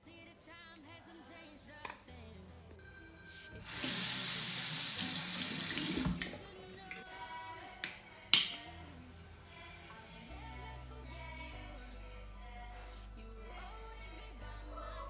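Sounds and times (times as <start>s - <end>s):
sink tap running: 3.6s - 6.4s
plastic cap clicking open: 7.8s - 8.6s.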